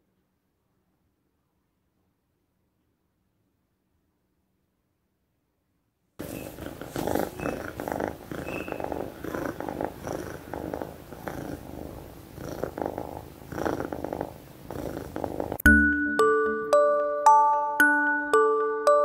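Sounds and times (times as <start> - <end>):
kitten purring: 6.2 - 15.7.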